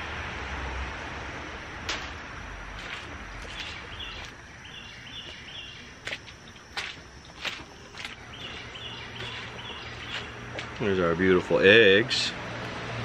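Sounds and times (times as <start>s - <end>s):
boot footsteps on dirt floor: 1.9s - 10.9s.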